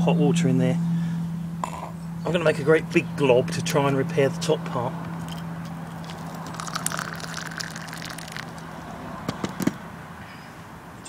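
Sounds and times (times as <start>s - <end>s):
hot water pouring into a mug: 6.0s - 8.6s.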